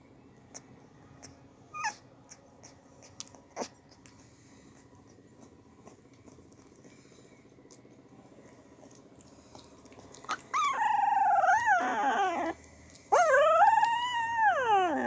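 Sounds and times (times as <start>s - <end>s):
puppies squeaking: 1.7s - 4.0s, 10.2s - 15.0s.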